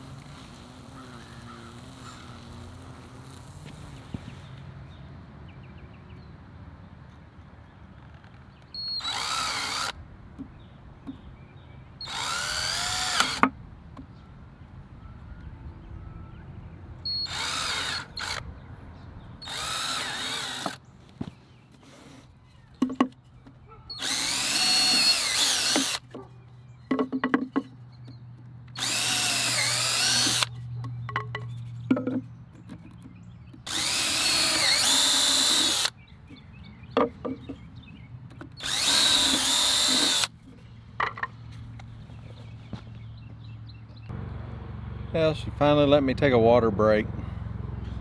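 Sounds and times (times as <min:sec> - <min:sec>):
cordless drill drilling wood: 0:00.0 - 0:04.5, 0:08.8 - 0:10.0, 0:12.0 - 0:13.5, 0:17.1 - 0:18.4, 0:19.4 - 0:20.8, 0:23.9 - 0:26.1, 0:28.7 - 0:30.6, 0:33.6 - 0:35.9, 0:38.6 - 0:40.3
wood knocking: 0:26.9 - 0:27.7.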